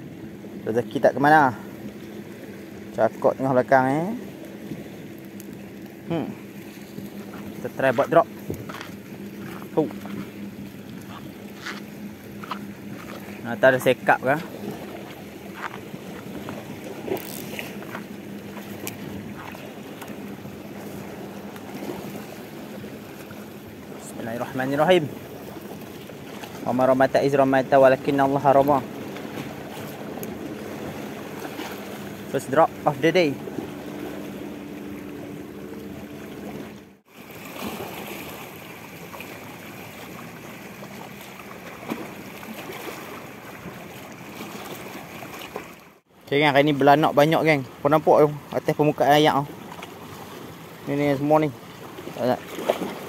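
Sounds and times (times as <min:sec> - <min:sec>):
steady low hum: 0:00.0 - 0:37.1
distant boat engine drone: 0:00.0 - 0:53.0
water lapping at rocks: 0:00.0 - 0:53.0.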